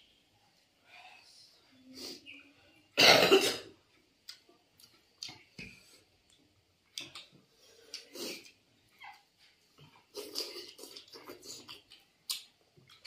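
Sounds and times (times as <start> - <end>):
person coughing: 3.0 - 3.7
eating clicks and smacks: 4.2 - 9.2, 9.8 - 13.0.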